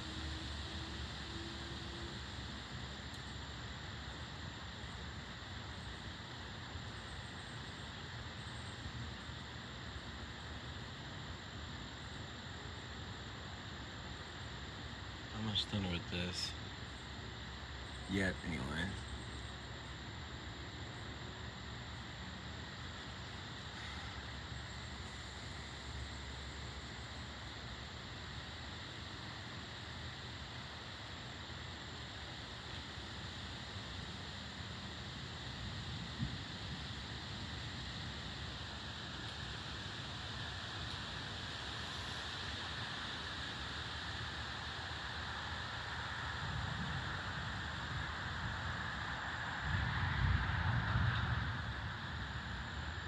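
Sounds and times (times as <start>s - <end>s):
faint high steady whine: 0.0s - 53.0s
wind hissing through trees: 0.0s - 53.0s
wind rumble on microphone: 35.6s - 38.2s, 46.3s - 53.0s.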